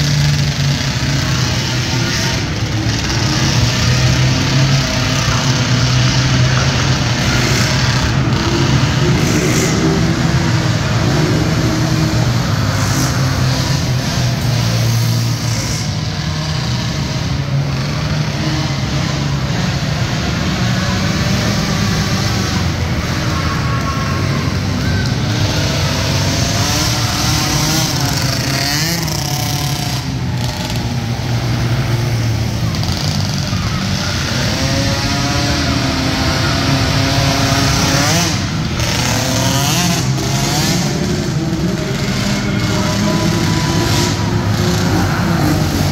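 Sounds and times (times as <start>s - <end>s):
quad bike engines droning: 0.0s - 45.9s.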